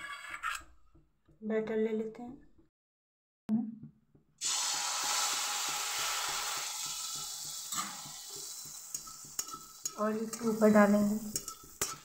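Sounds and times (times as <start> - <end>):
batter sizzling in hot oil: 4.4 - 12.0.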